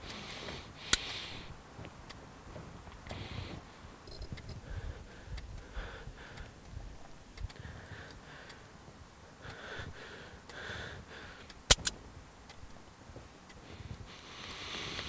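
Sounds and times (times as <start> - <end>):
tense breathing: 0.0 - 1.6, 3.0 - 11.8, 13.6 - 15.0
revolver hammer clicks: 11.6 - 12.7.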